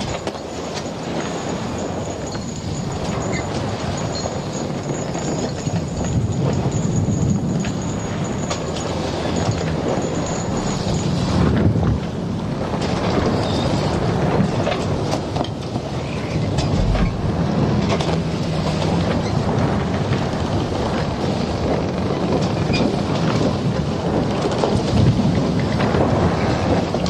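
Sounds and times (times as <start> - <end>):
wind and rain rushing: 0.0 - 27.0
low rumble: 16.2 - 20.9.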